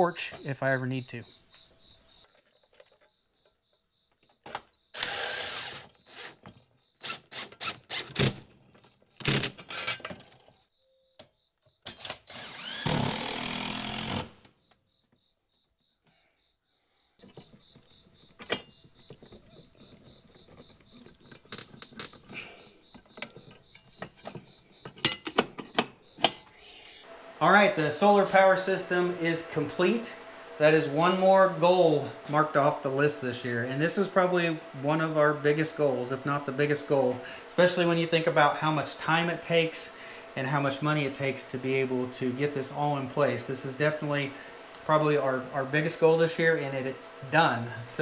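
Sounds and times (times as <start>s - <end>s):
crickets chirping: 0.0s - 44.7s
power drill driving screws: 5.0s - 6.4s, 7.0s - 8.4s, 12.0s - 14.4s
handling clicks and knocks: 17.2s - 26.4s.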